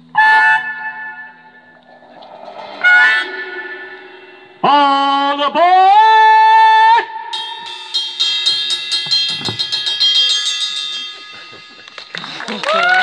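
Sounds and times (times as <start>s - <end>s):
sustained guitar and bass tones: 0.0s - 5.8s.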